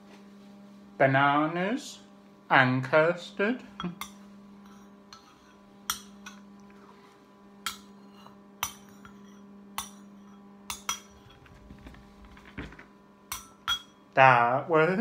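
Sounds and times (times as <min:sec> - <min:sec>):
steady low hum: 0:00.0 - 0:15.0
spoon scraping ceramic bowl: 0:03.8 - 0:06.4, 0:07.7 - 0:11.6.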